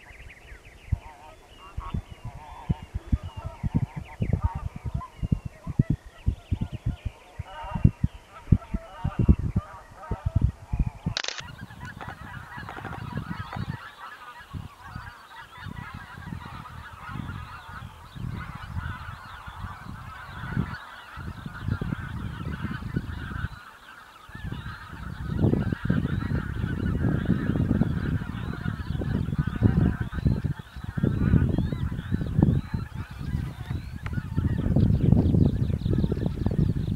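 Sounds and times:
geese honking in flight: 11.5s - 35.1s.

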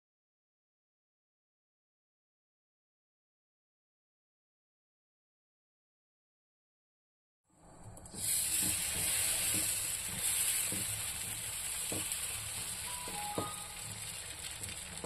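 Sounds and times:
batter sizzling on griddle: 8.0s - 15.0s.

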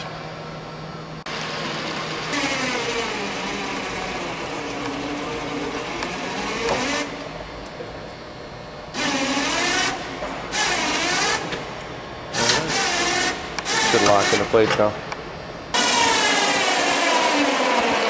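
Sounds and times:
electric motor whining: 15.7s - 18.0s.

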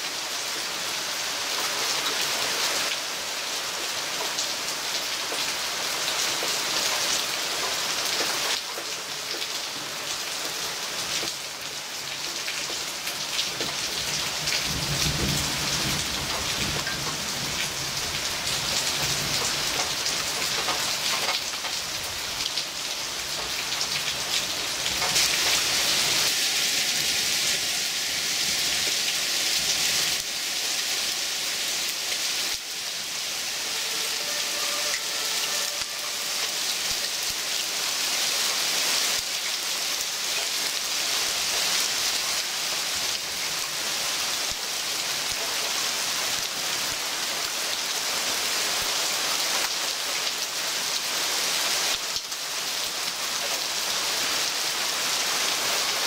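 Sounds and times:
heavy rain hissing: 0.0s - 56.0s
thunder rumbling: 14.3s - 20.0s.

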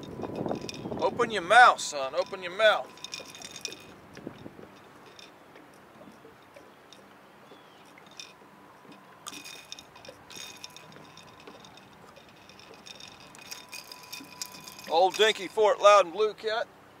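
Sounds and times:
crackling: 9.2s - 15.6s.

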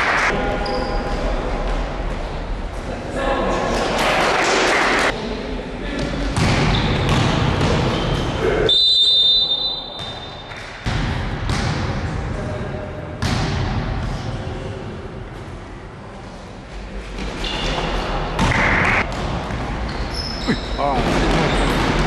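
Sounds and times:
voices in echoing hall: 0.0s - 22.0s
basketball bouncing: 6.4s - 8.0s, 10.8s - 11.9s
high steady whistle: 8.7s - 10.4s.

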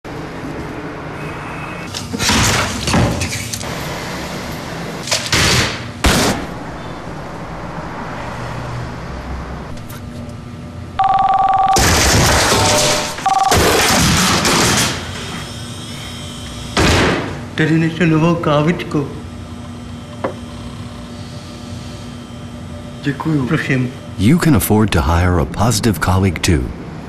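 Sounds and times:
loud rushing noise: 6.2s - 10.0s
two-pitch buzzing tone: 11.0s - 13.8s
papers and objects crashing: 11.8s - 15.0s.

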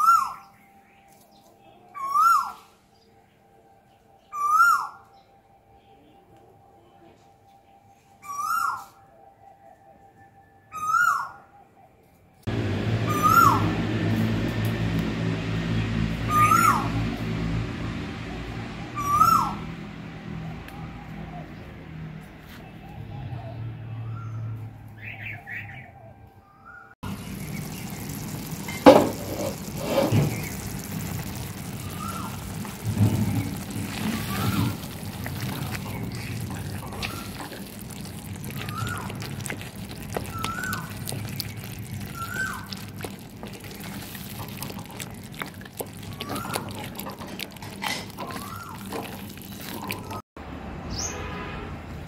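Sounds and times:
wooden spoon stirring and mashing: 27.1s - 50.2s.

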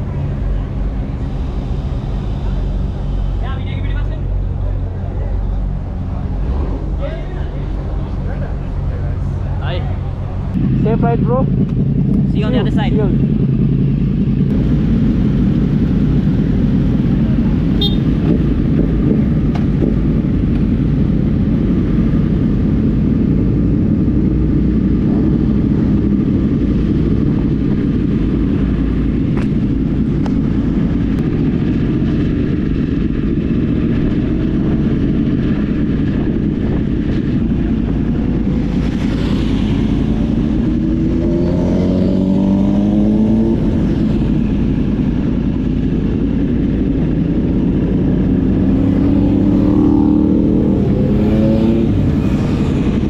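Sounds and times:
motorcycle engine accelerating: 10.0s - 53.0s.

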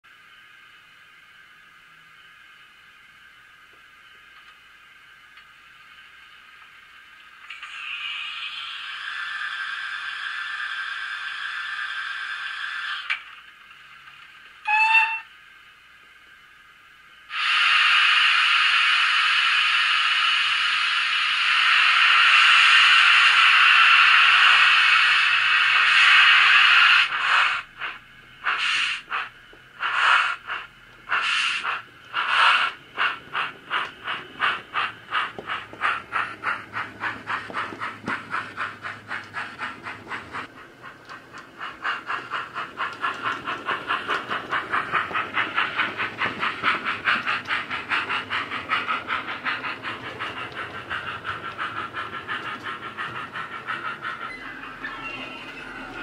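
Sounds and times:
steam locomotive exhaust chuffs: 0.1s - 56.0s.

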